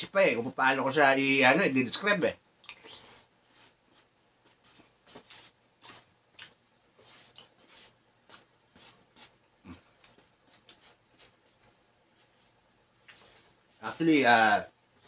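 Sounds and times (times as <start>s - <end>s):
chewing clicks and smacks: 2.6s - 2.8s.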